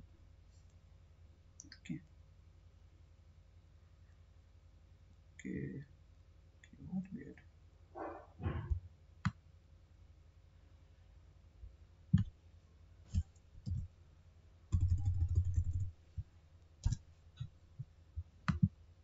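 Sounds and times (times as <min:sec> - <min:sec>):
keyboard keystrokes: 0:13.1 - 0:13.9, 0:14.7 - 0:15.9, 0:16.8 - 0:17.0.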